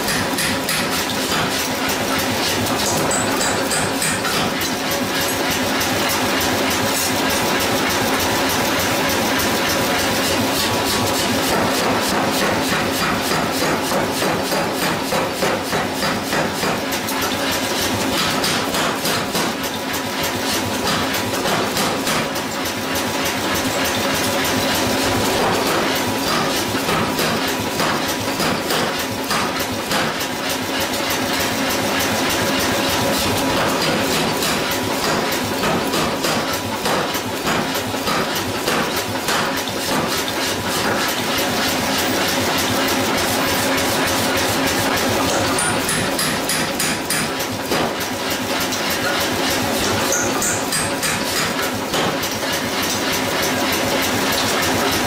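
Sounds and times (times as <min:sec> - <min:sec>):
power hammer pounding steel: 0:00.0 - 0:55.0
power hammer clattering: 0:48.9 - 0:52.4.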